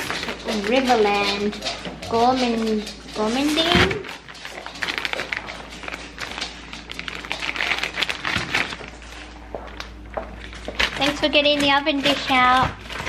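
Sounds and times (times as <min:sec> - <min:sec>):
plastic bag crinkling: 0:00.0 - 0:13.0
scissors cutting plastic: 0:10.6 - 0:13.0.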